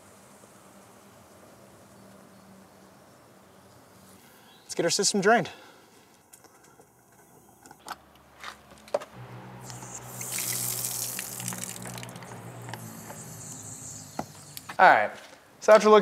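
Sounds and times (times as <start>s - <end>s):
low hum in pipes: 9.2s - 14.8s
water gushing from tap: 9.6s - 13.5s.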